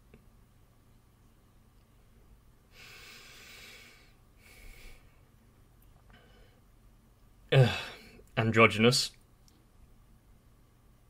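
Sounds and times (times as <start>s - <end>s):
man breathing out: 2.7s - 5.2s, 7.5s - 8.2s.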